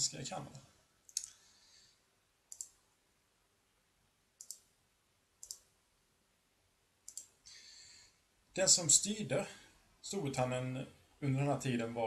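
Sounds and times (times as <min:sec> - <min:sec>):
computer mouse clicks: 0:01.1 - 0:01.4, 0:02.5 - 0:02.8, 0:04.4 - 0:04.7, 0:05.4 - 0:05.7, 0:07.0 - 0:07.4.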